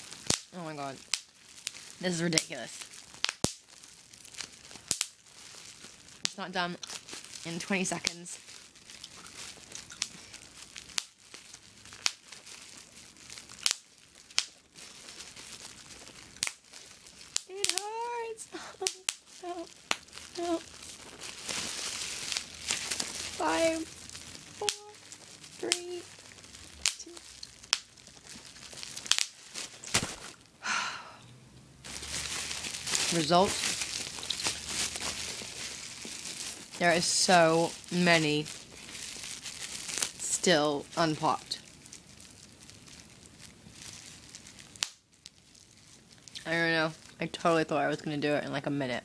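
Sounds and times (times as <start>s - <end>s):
bubble wrap bubbles popping: 0.0s - 30.5s, 31.8s - 48.0s
bubble wrap crinkling: 0.0s - 30.5s, 31.8s - 48.5s.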